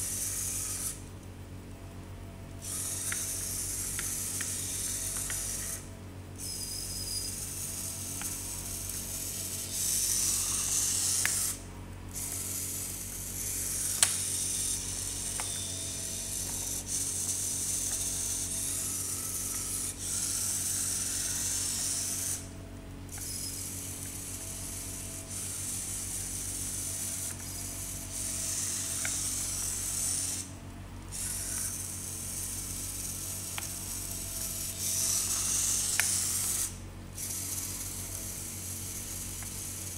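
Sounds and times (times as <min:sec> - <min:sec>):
small motors whirring: 0:00.0 - 0:01.3, 0:02.4 - 0:39.9.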